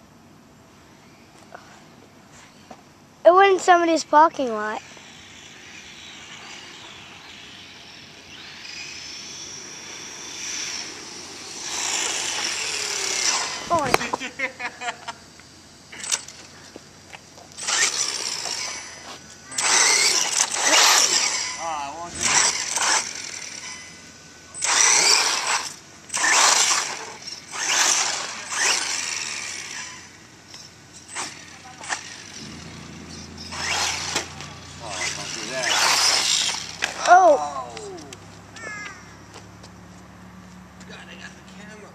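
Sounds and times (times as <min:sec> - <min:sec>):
toy truck motor whining: 0:04.4 - 0:14.2, 0:17.5 - 0:39.2
small nitro engine revving: 0:04.6 - 0:14.3, 0:17.6 - 0:39.2.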